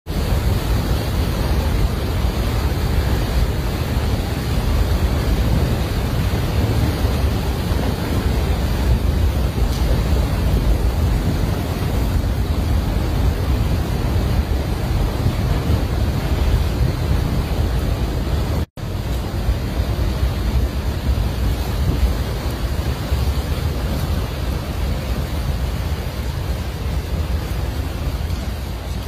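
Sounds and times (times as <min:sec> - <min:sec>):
avalanche rushing and rumbling: 0:00.1 - 0:29.0
wind buffeting microphone: 0:00.1 - 0:29.0.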